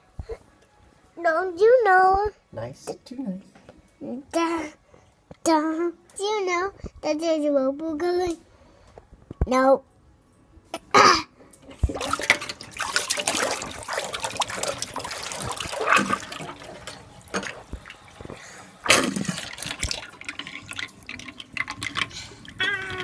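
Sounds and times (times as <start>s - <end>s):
water draining and gurgling in sink: 11.7s - 23.0s.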